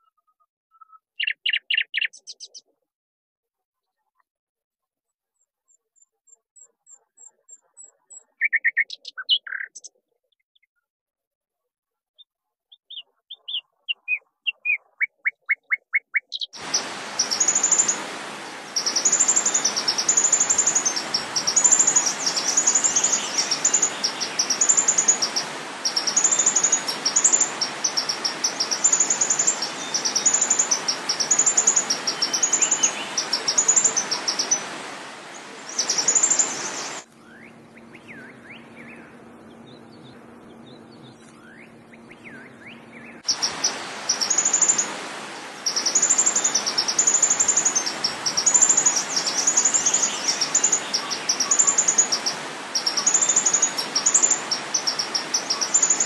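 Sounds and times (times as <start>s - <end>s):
songbird chirping: 0.0s - 2.8s, 5.7s - 10.8s, 12.2s - 56.0s
steady hiss: 16.6s - 39.2s, 43.0s - 56.0s.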